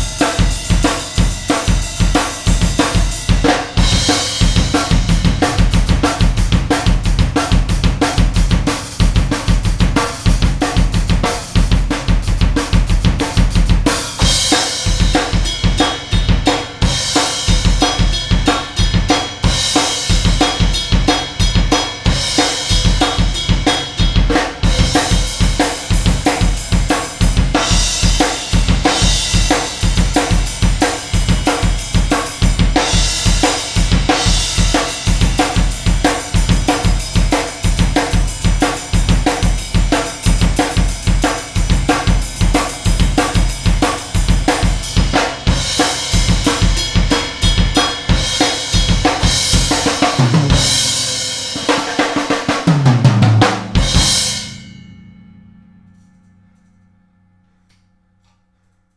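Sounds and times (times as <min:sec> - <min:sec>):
cymbal crashes: 0:00.0 - 0:52.6, 0:53.3 - 0:57.7
drum kit rock beat: 0:00.0 - 0:54.9.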